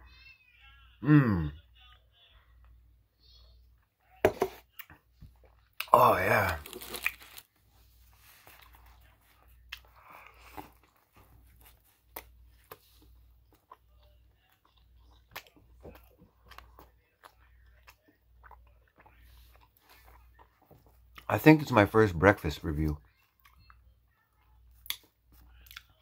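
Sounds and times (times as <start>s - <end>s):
person chewing sandwich: 4.7s - 21.3s, 22.9s - 26.0s.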